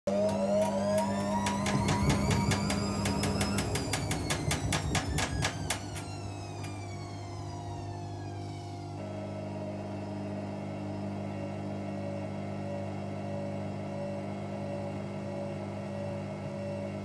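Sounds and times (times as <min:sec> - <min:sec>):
washing machine motor winding down: 0:00.0 - 0:17.0
steady hum: 0:00.1 - 0:17.0.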